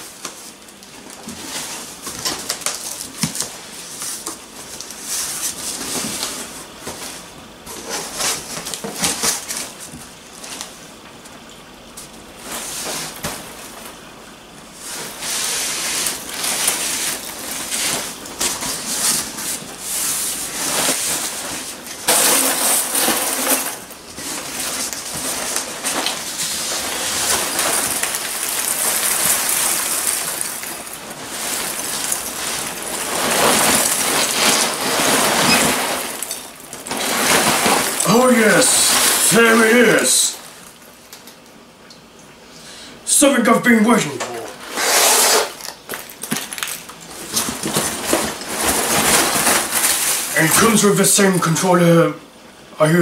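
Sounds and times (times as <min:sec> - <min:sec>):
cardboard flaps scraping: 0:14.8 - 0:40.6, 0:44.3 - 0:50.8
packing peanuts rustling: 0:14.8 - 0:41.4, 0:43.9 - 0:51.2
peanuts spilling onto table: 0:22.1 - 0:23.7, 0:27.1 - 0:40.4.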